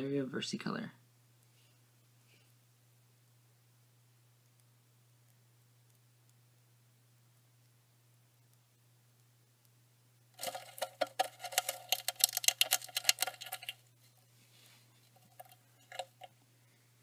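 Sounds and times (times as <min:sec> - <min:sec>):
rapid clicking and rattling: 0:10.4 - 0:13.8, 0:15.0 - 0:16.3.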